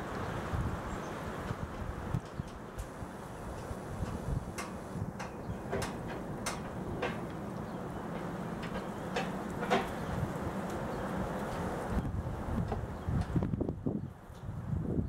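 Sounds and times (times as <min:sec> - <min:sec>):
wind noise on microphone: 0:00.0 - 0:15.0
metallic clicks and taps: 0:03.6 - 0:07.4.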